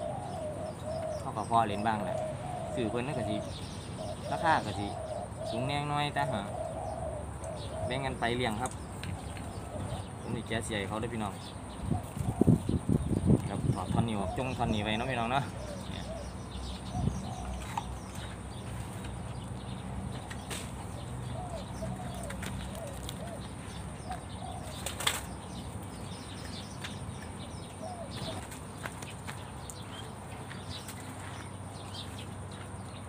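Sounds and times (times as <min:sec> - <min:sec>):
dove wings flapping: 0:24.6 - 0:25.3.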